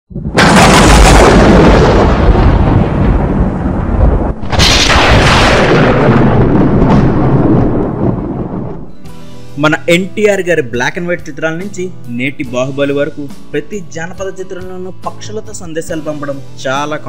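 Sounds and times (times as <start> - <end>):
cinematic boom hits: 0.2 - 8.9.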